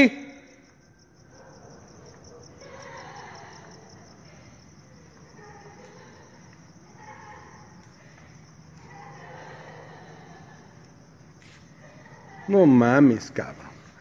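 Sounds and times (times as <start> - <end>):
crickets chirping: 0.0 - 14.0
low background noise: 0.0 - 14.0.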